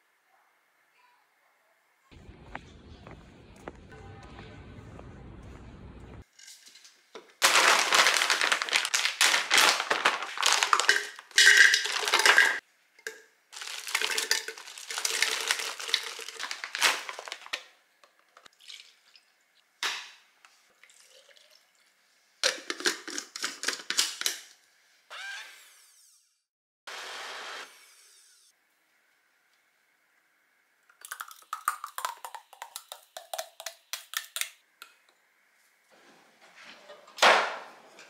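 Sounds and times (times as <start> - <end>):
frozen berries rattling into blender: 7.4 - 12.6, 13.6 - 17.6.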